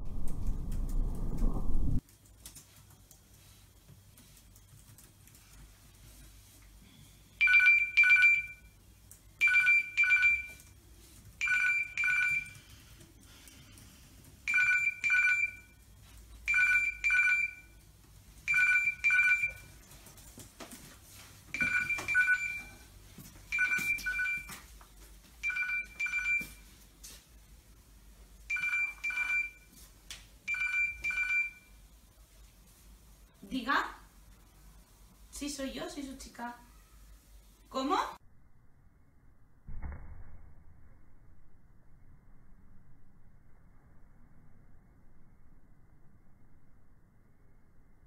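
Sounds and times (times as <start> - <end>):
telephone two-tone trill ringing: 14.5 - 15.7.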